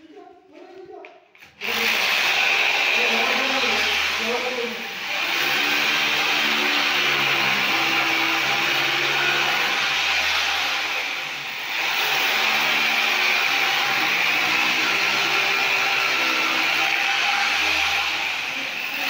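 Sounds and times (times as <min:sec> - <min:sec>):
rotary hammer chipping concrete: 0:11.7 - 0:19.0.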